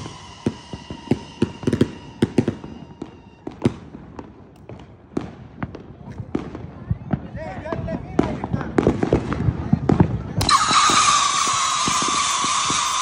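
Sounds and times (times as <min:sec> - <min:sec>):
firework whistles: 0:00.0 - 0:03.6, 0:10.4 - 0:13.0
firework bangs: 0:00.0 - 0:13.0.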